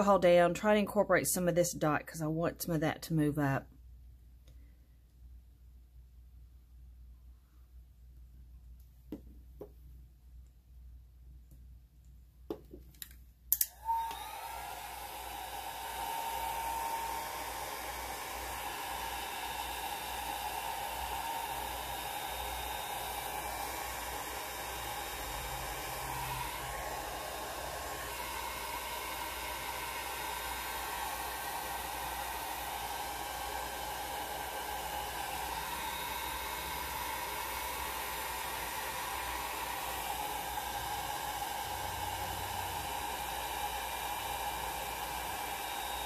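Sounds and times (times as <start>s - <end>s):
hair dryer blowing: 13.6s - 46.0s.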